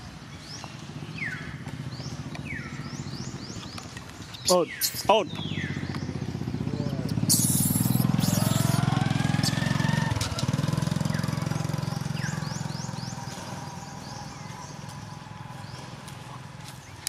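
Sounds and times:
small engine running: 5.0s - 16.8s
short high chirps: 7.3s - 8.8s.

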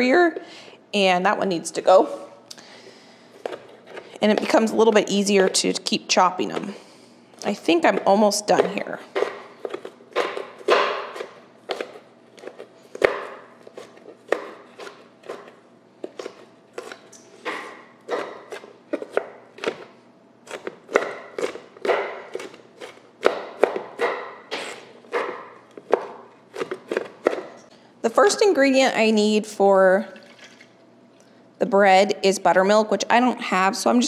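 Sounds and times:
knife chopping on wooden board: 7.8s - 19.9s, 20.5s - 27.6s.

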